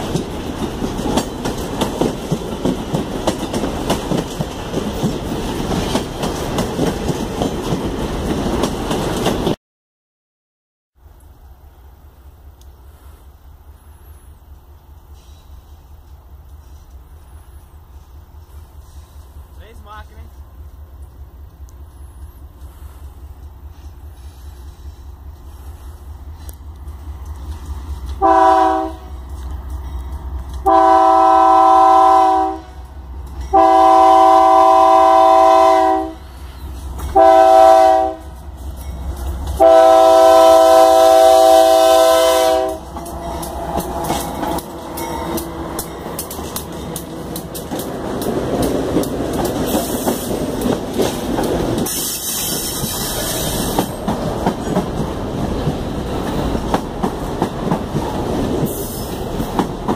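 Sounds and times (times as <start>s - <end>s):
train wheels clacking over rails: 0.0s - 9.6s, 14.9s - 59.9s
high hiss: 12.2s - 20.1s, 51.8s - 54.0s
locomotive air horn blasts: 28.2s - 29.1s, 30.6s - 32.8s, 33.5s - 36.3s, 37.1s - 38.3s, 39.6s - 42.9s.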